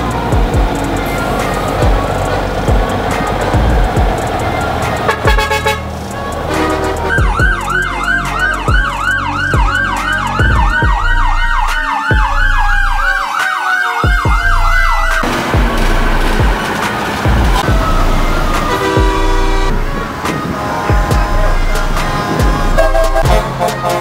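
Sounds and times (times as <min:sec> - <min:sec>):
music with heavy bass beat: 0:00.0 - 0:24.0
siren warbling fast: 0:07.1 - 0:15.3.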